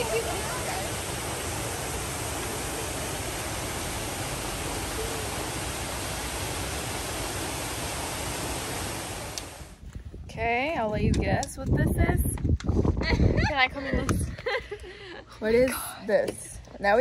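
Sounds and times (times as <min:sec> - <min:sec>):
waterfall and stream rushing: 0:00.0 - 0:09.8.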